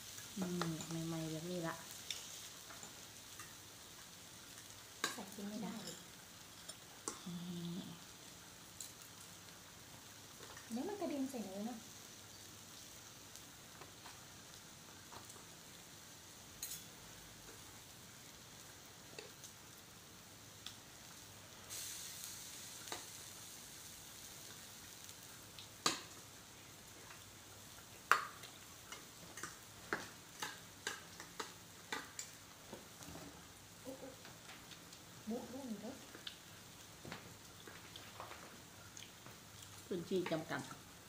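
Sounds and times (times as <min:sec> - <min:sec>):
meat sizzling on grill pan: 0:00.0 - 0:41.0
cutlery clicking on dishes: 0:28.1 - 0:32.4.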